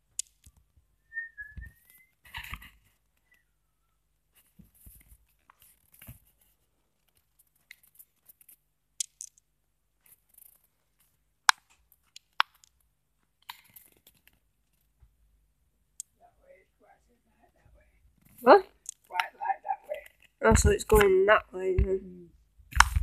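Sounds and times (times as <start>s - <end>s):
sharp clicks: 9.0s - 9.4s.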